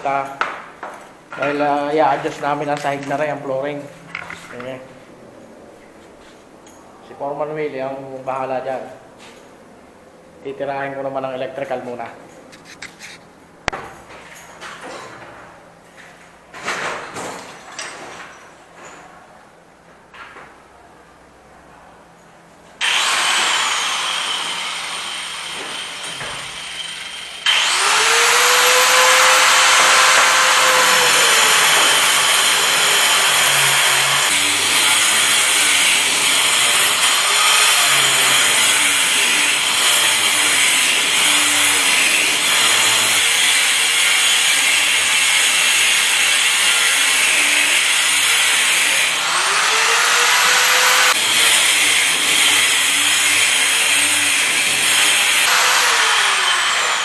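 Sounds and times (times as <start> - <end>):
angle grinder cutting wall: 22.8 - 57.0.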